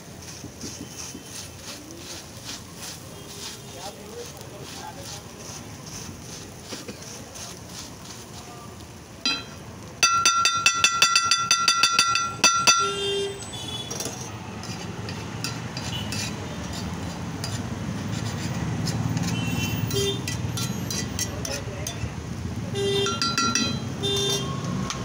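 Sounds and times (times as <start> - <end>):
metal spatula striking iron griddle: 9.2 - 13.2, 13.8 - 22.1, 23.0 - 25.0
light clicks of spatula: 20.2 - 22.1.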